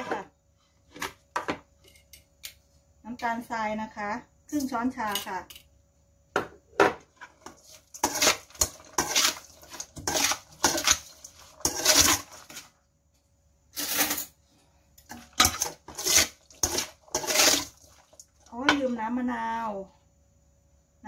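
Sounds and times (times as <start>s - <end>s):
metal spoon scraping a steel bowl: 7.3s - 12.7s, 13.8s - 14.4s, 15.0s - 18.0s.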